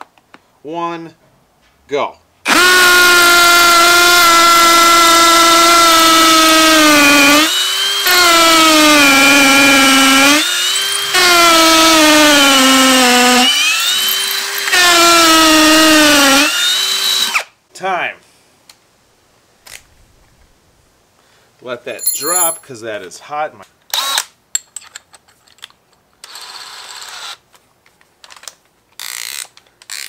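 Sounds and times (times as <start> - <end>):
hammer drill boring into concrete: 2.5 - 17.5, 22.0 - 22.6, 23.9 - 24.3, 26.2 - 27.4, 29.0 - 30.0.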